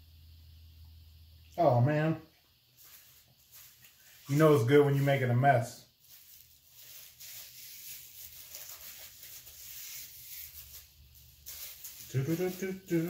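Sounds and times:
plastic wrapper crinkling: 6.0s - 13.0s.

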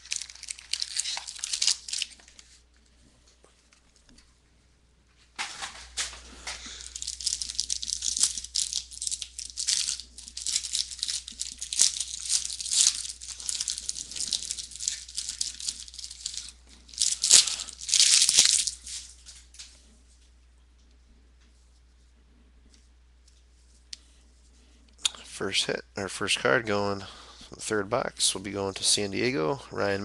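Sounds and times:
foil wrapper crinkling: 0.0s - 2.6s, 5.4s - 19.7s.

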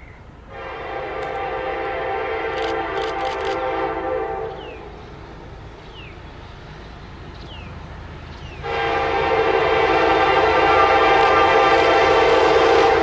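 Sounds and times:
locomotive air horn: 0.5s - 4.9s, 8.6s - 13.0s.

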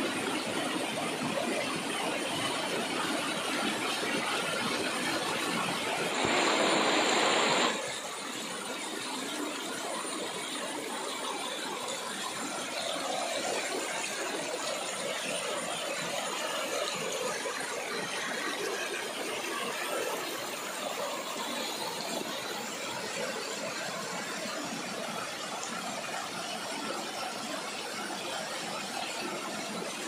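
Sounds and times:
waterfall rushing over rocks: 1.7s - 10.4s.

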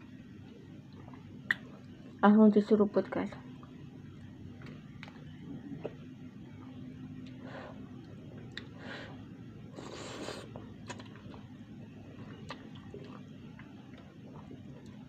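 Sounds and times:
chewing: 9.8s - 11.5s, 12.1s - 15.0s.

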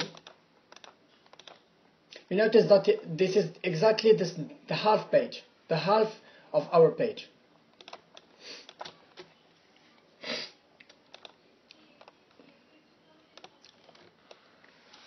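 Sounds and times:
keyboard and mouse clicks: 0.0s - 1.6s, 7.7s - 9.3s, 10.8s - 11.4s, 13.4s - 14.4s.

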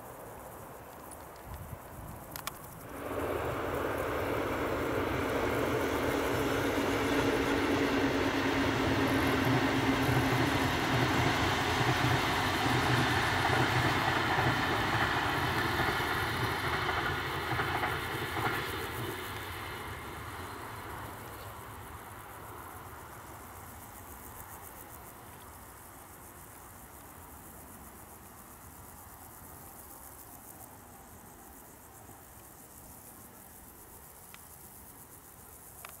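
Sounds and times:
train wheels rumbling on rail: 1.0s - 36.0s
locomotive hum: 1.4s - 26.4s.

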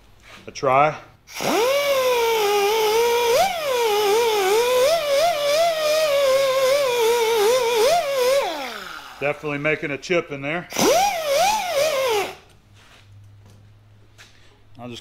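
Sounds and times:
die grinder high whine: 1.3s - 9.5s, 10.7s - 12.4s.

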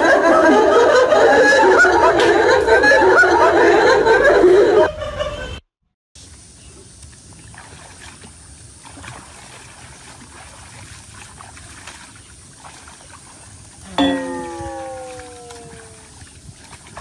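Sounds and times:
steady outdoor hiss: 6.2s - 17.0s
pond water sloshing: 6.4s - 17.0s
small splashes of wading: 6.8s - 17.0s.

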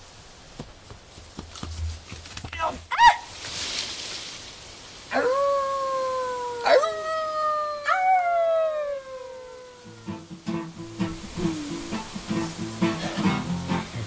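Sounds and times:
wolf-like howling: 5.1s - 10.2s.

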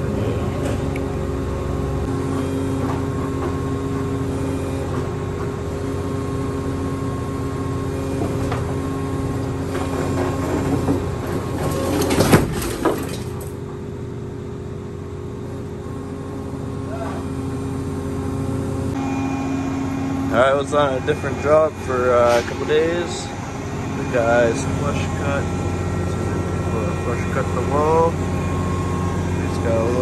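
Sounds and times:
hydraulic machine hum: 0.0s - 30.0s
heavy door crashing on concrete: 11.6s - 13.4s.

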